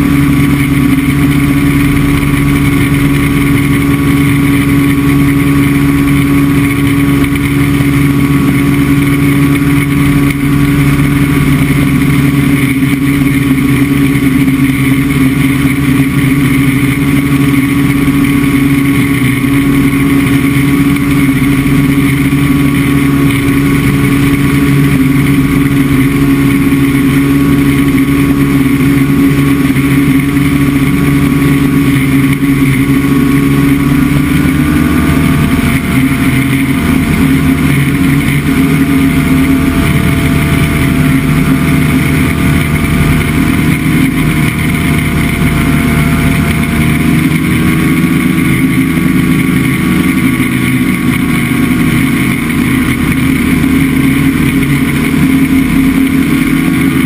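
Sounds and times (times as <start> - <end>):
ultralight aircraft engine drone: 0.0 - 57.0.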